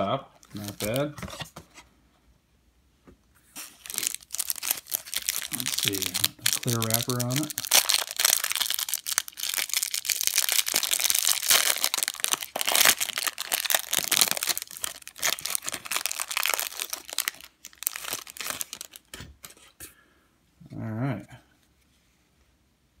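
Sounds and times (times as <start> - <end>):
plastic wrapper crinkling: 0.4 - 1.2, 3.6 - 19.2.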